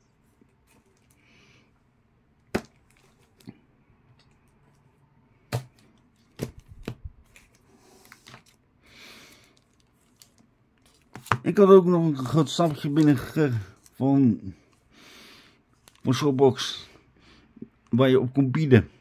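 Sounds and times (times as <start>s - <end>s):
comic books knocking: 2.5s - 2.8s
paper rustling: 5.7s - 8.6s, 9.3s - 11.5s, 12.2s - 14.0s.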